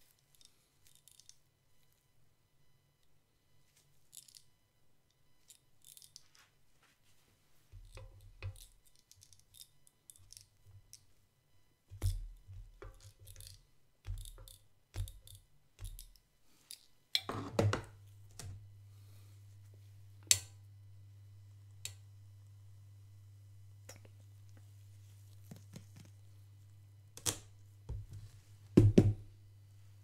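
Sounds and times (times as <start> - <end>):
low steady hum: 1.6 - 30.0
tongs clicking and tapping: 11.9 - 16.8.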